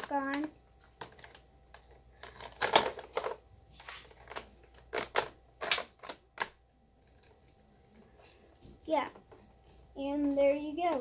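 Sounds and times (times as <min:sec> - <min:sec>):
plastic parts clicking and rattling: 0:00.0 - 0:08.4.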